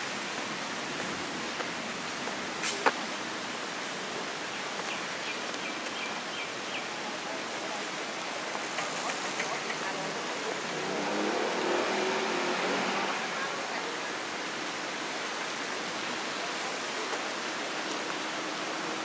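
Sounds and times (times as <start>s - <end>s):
birds chirping: 4.4s - 7.1s
outdoor rushing noise: 8.4s - 15.6s.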